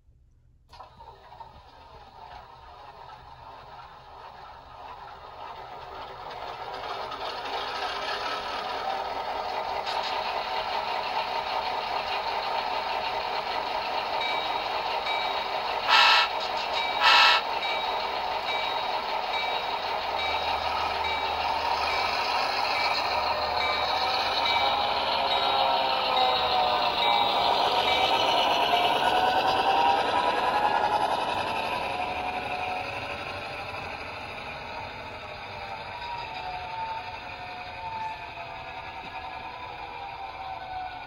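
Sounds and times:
low rumble of rolling locomotives: 0.0s - 41.0s
simulated diesel engine running: 0.7s - 41.0s
bell ringing: 14.2s - 28.8s
short horn blasts: 15.9s - 16.3s.

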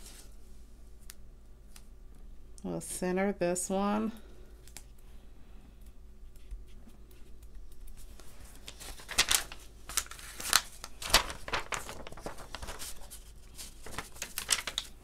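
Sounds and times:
sticker sheet crinkling: 7.2s - 15.0s.

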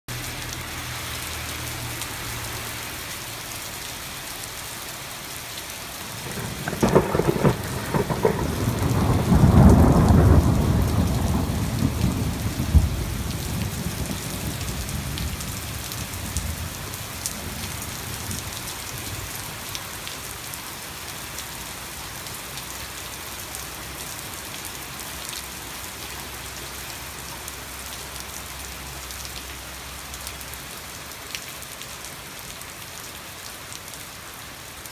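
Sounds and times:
heavy rain pouring: 0.1s - 34.9s
thunder crack and rumble: 6.1s - 16.8s.

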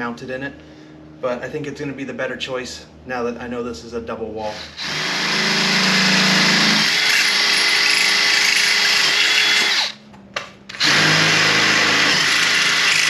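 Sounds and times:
cordless drill boring through metal: 4.4s - 10.0s, 10.7s - 13.0s.

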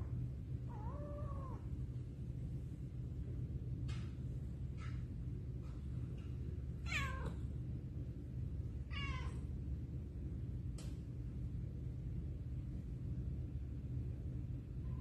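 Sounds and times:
low background hum: 0.0s - 15.0s
kitten meowing: 6.9s - 7.3s.

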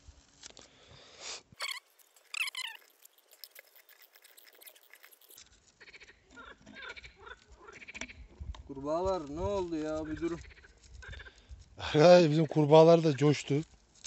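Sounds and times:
frogs croaking: 1.6s - 8.3s.

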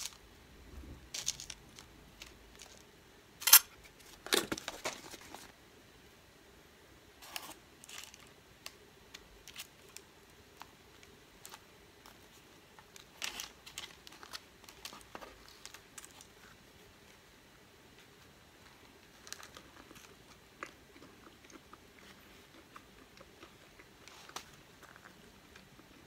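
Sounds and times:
soft paper crinkles: 3.9s - 5.6s, 7.2s - 17.2s, 17.9s - 20.4s, 22.0s - 26.0s
paper rustle: 4.0s - 5.5s.

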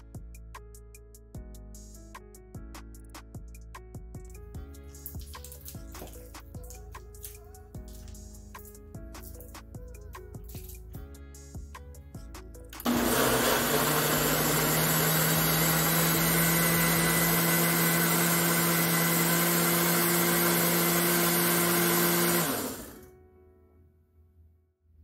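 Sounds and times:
blender whirring: 12.8s - 23.1s.

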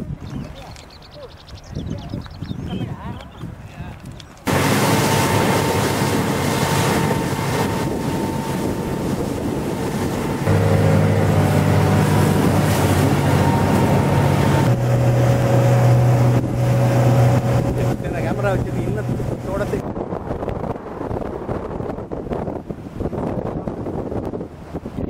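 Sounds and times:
wind on microphone: 0.0s - 25.0s
rushing water: 4.5s - 19.8s
outboard motor droning: 4.5s - 24.9s.

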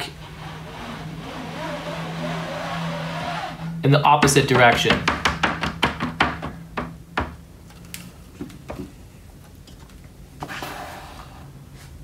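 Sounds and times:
squeegee scraping across mesh: 0.0s - 3.9s
squeegee knocking on metal frame: 4.2s - 7.4s.

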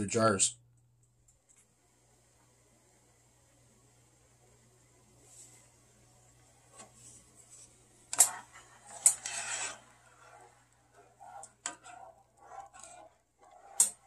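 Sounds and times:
spoon scraping saucepan: 8.2s - 14.0s
spoon stirring liquid: 8.2s - 14.0s.

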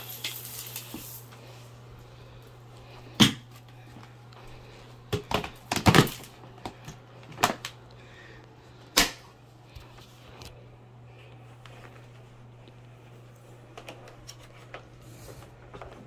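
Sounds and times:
vacuum cleaner humming: 0.0s - 7.6s.

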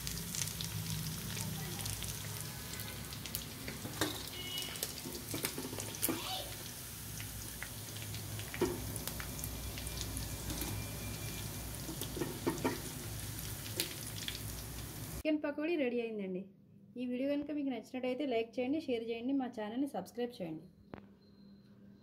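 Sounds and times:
deep-frying sizzle in oil: 0.0s - 15.2s
steel spoon scraping wok: 3.7s - 6.1s, 10.2s - 13.0s.

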